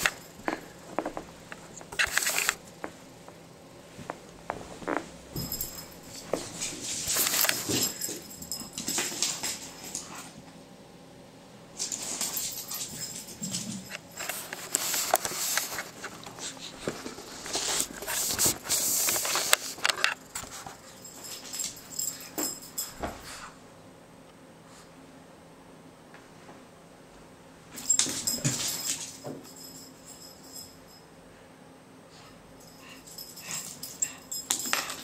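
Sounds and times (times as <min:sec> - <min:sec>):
puppy scratching on carpet: 0:14.2 - 0:19.8.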